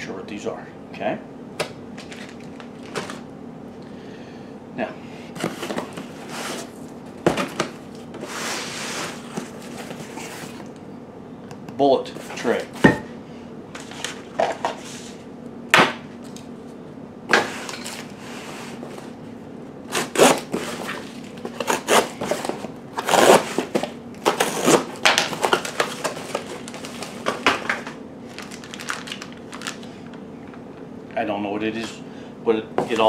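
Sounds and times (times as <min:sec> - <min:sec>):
packing tape ripping: 0:19.9 - 0:27.2, 0:28.3 - 0:29.9
plastic packing crinkling: 0:21.1 - 0:30.2.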